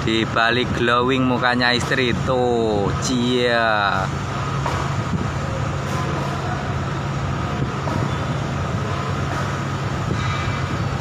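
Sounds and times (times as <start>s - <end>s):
traffic noise: 0.0s - 11.0s.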